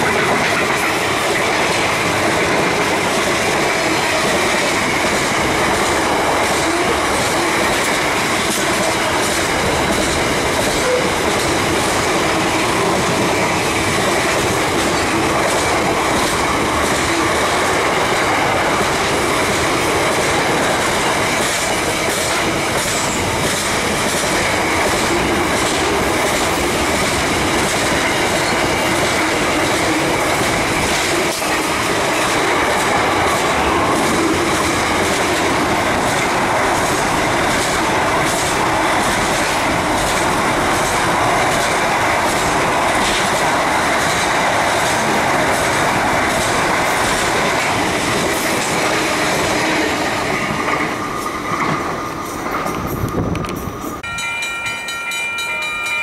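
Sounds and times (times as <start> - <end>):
train wheels rumbling on rail: 0.0 - 56.0
wheels clicking over rail joints: 0.0 - 56.0
faint high ring: 54.0 - 56.0.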